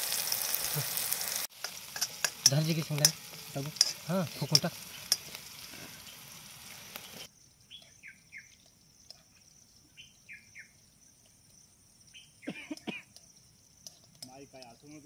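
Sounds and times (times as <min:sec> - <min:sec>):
food sizzling in a frying pan: 0:00.0 - 0:10.3
bird chirping: 0:04.3 - 0:15.0.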